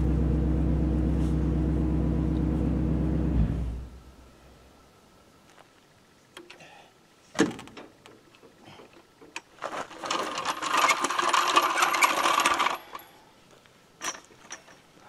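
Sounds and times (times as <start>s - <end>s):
floor jack rattling: 9.6s - 13.0s.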